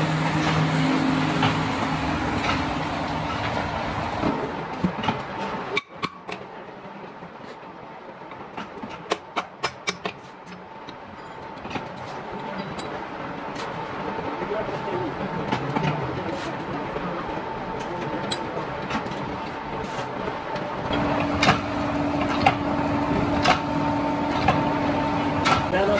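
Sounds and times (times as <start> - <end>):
machine running: 0.0 - 5.7, 12.3 - 25.9.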